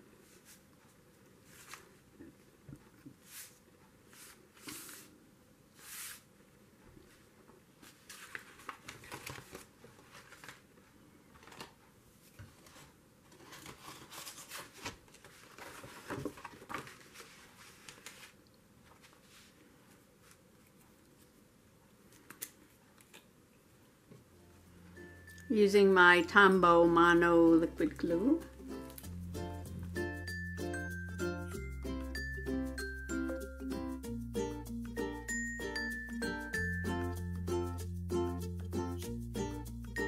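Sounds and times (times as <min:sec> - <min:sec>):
paper rustling and crinkling: 0:01.4 - 0:02.1, 0:07.1 - 0:21.4.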